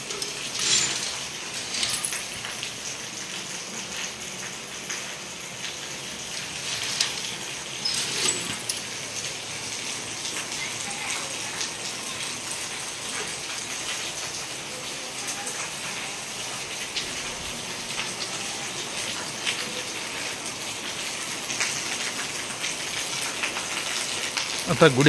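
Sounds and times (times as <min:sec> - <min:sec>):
heavy rain on wet ground: 0:00.0 - 0:25.0.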